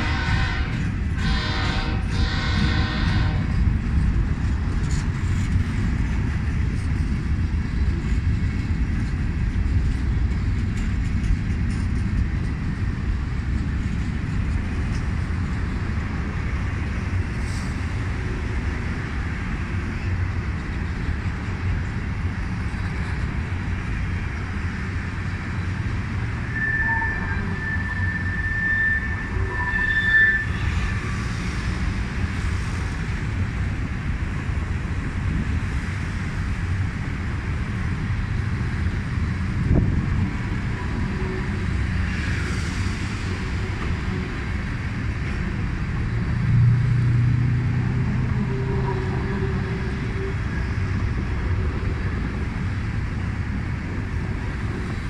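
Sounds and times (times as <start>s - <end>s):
freight cars rumbling on rails: 0.0s - 55.0s
high wheel squeal: 26.4s - 31.2s.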